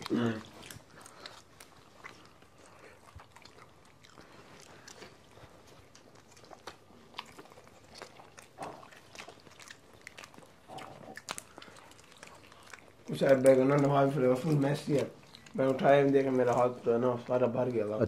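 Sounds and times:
muffled mouth sounds: 0.0s - 3.4s
chewing and biting pizza: 0.0s - 18.0s.

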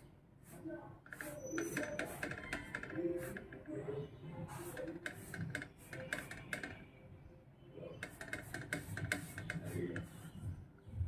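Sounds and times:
dough scraping on griddle: 1.1s - 3.6s, 8.0s - 10.3s.

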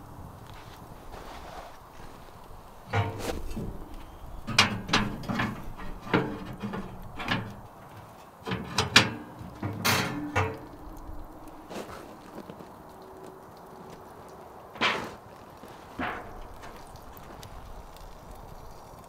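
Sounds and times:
camp gear knocking and clunking: 2.0s - 12.7s, 14.8s - 18.6s.

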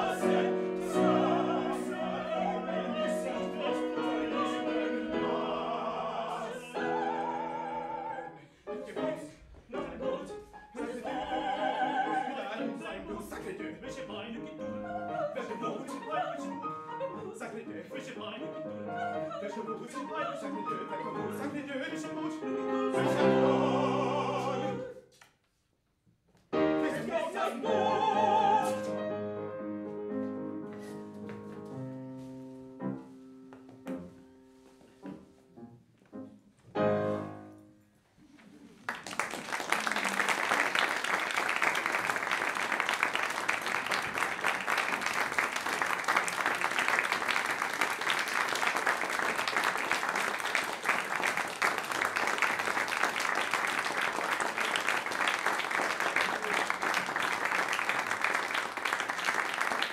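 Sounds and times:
operatic singing: 0.0s - 25.1s, 26.6s - 29.1s
piano: 0.0s - 25.1s, 26.4s - 59.9s
audience applause: 38.7s - 59.9s.

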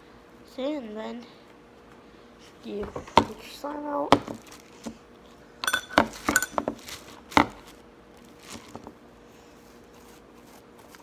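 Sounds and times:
metal straw clinking on bowl: 5.6s - 6.7s
slime handling noises: 5.9s - 9.0s.

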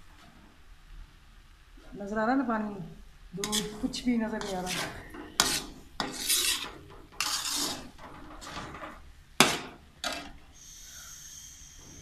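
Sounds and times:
metal spatula scraping a pan: 3.4s - 10.4s.

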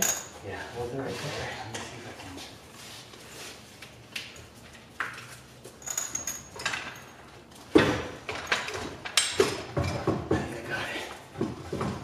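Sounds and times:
metal clunks and rattles: 7.7s - 10.5s.

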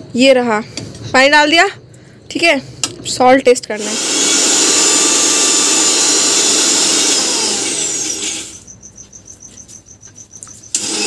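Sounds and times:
mixer grinder running: 3.8s - 8.6s, 10.7s - 11.0s.

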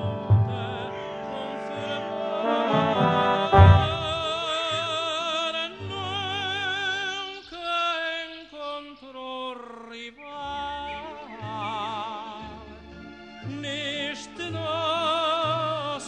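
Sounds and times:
operatic voice singing: 0.0s - 4.8s.

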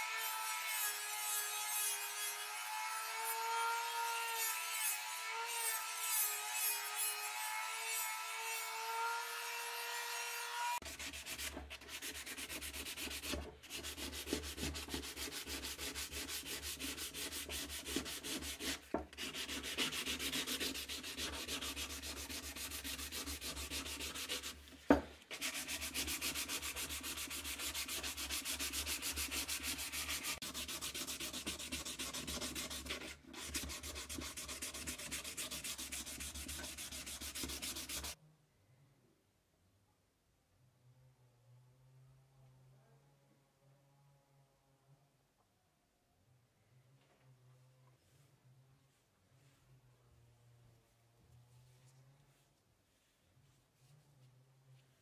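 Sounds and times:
sandpaper rubbing on wood: 10.8s - 24.7s, 25.3s - 38.2s.

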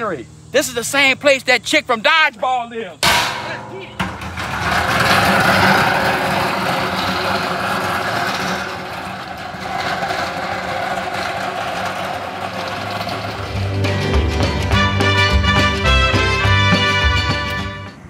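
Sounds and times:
metal cart rattling on pavement: 3.0s - 16.2s.

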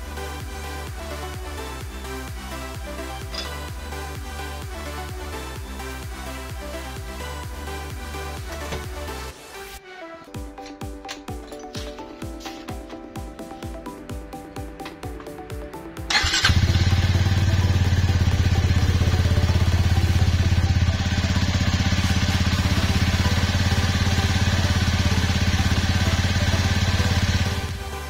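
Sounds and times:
motorcycle engine starting and idling: 0.4s - 9.3s, 16.0s - 28.0s.

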